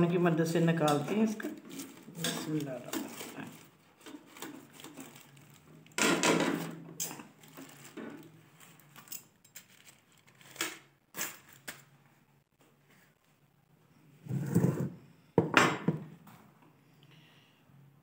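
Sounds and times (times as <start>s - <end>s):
aluminium foil rustling: 0.0s - 12.0s.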